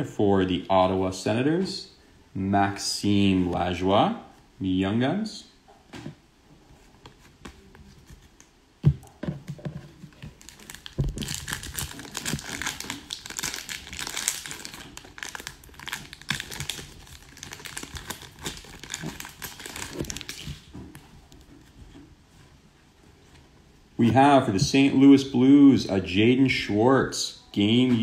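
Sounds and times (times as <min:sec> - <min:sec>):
foil wrapper crinkling: 0:10.3 - 0:20.7.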